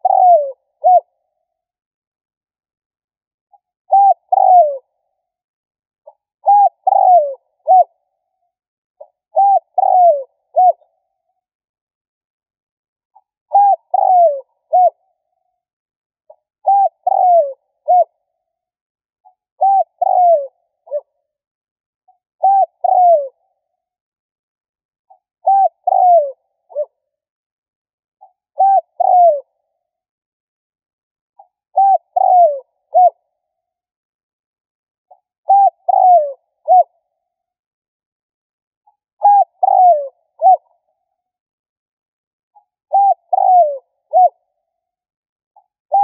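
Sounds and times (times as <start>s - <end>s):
dove cooing: 0.0s - 1.1s, 3.9s - 4.8s, 6.4s - 7.9s, 9.4s - 10.8s, 13.5s - 15.0s, 16.6s - 18.1s, 19.6s - 21.1s, 22.4s - 23.4s, 25.4s - 26.9s, 28.6s - 29.5s, 31.8s - 33.2s, 35.5s - 36.9s, 39.2s - 40.7s, 42.9s - 44.4s.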